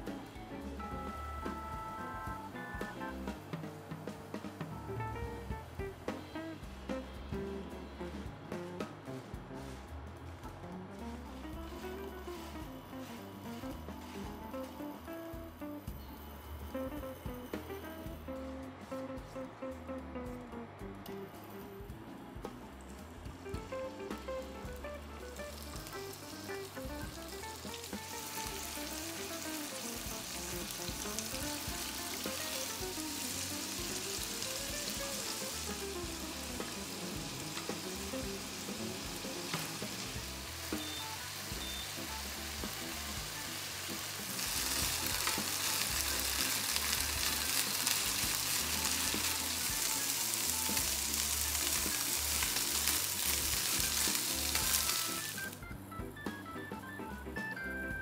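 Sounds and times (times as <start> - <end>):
food sizzling in oil: 11.4 - 18.4, 23.5 - 55.6.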